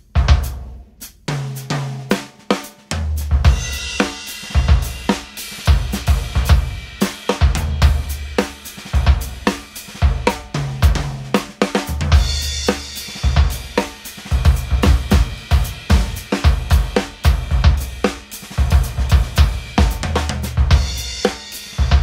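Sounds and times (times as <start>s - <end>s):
drum kit groove: 0.0s - 22.0s.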